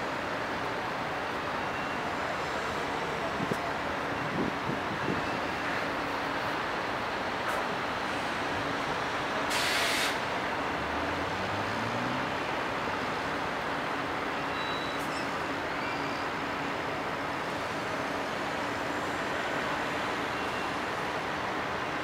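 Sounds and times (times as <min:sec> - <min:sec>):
air brakes hissing: 0:09.5 - 0:10.2.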